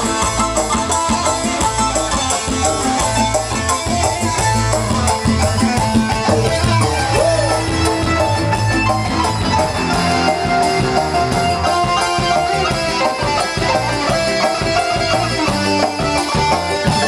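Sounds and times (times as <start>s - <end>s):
electric guitar: 0.0s - 17.0s
keyboard: 0.0s - 17.0s
live band music: 0.0s - 17.0s.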